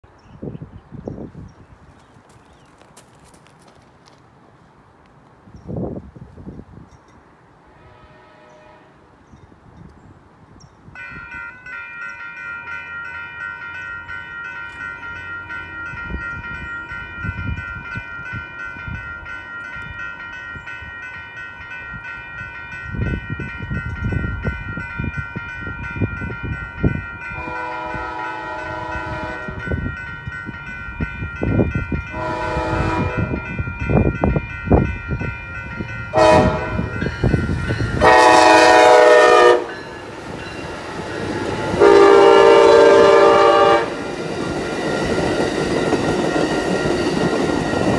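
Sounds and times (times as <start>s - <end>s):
train horn blasts: 7.7s - 9.1s, 27.3s - 29.8s, 32.0s - 33.5s, 36.1s - 39.9s, 41.7s - 44.0s
crossing warning bell ringing: 10.6s - 47.9s
train rumble: 11.1s - 47.9s.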